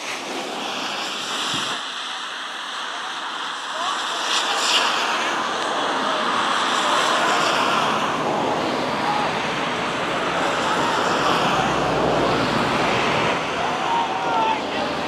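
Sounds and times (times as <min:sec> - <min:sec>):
wind noise on microphone: 0:00.0 - 0:01.8
faint shouts of players: 0:08.9 - 0:09.6, 0:10.3 - 0:12.3, 0:13.4 - 0:15.0.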